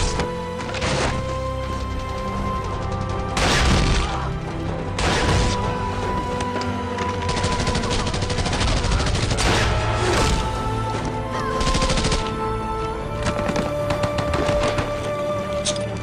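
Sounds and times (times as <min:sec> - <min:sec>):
film score with held notes: 0:00.0 - 0:16.0
rapid gunfire bursts: 0:07.3 - 0:09.5.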